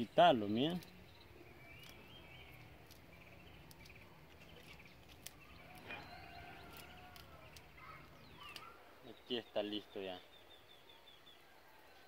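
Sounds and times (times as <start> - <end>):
faint bird chirps: 0.0 - 12.0
bark peeling clicks: 2.8 - 6.0, 6.6 - 8.8.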